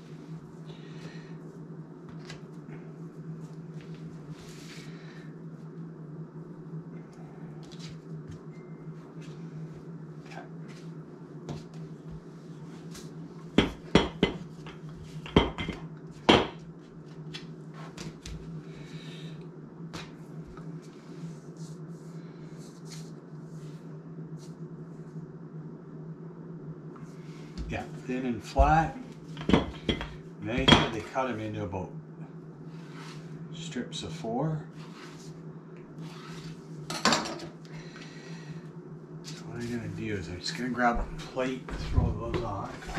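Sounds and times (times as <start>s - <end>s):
low hum: 0.0s - 42.9s
utensils clattering on countertop: 36.9s - 37.5s.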